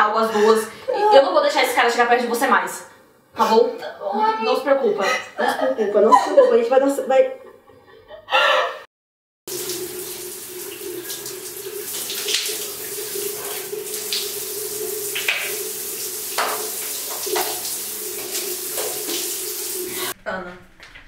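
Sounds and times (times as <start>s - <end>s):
shower water spraying: 9.5s - 20.2s.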